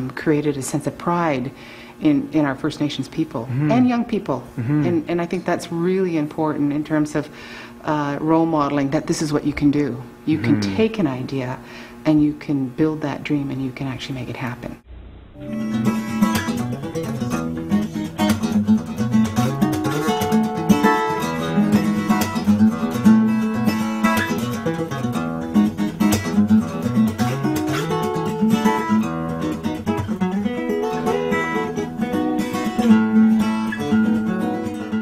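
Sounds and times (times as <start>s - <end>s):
acoustic guitar music: 3.4s - 5.2s, 10.3s - 11.1s, 14.8s - 35.0s.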